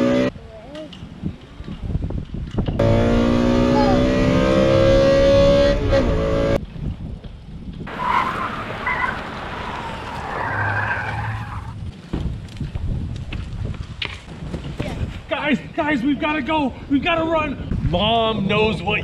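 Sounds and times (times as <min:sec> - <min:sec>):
car engine racing: 0:00.0 - 0:00.3, 0:02.8 - 0:06.6, 0:07.9 - 0:11.8.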